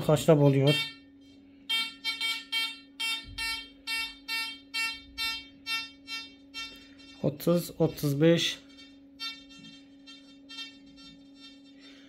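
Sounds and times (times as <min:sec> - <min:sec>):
faint steady hum: 0:00.0 - 0:12.0
metal detector beeping: 0:01.7 - 0:07.4, 0:08.4 - 0:11.9.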